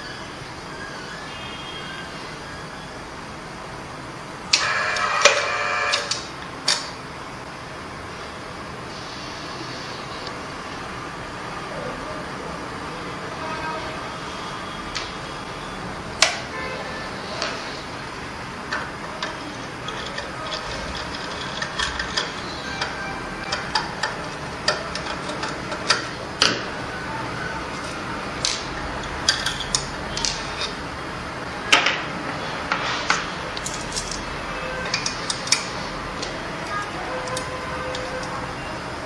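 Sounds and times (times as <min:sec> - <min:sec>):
metal tools clicking and clinking: 0:18.7 - 0:22.5, 0:28.4 - 0:30.8.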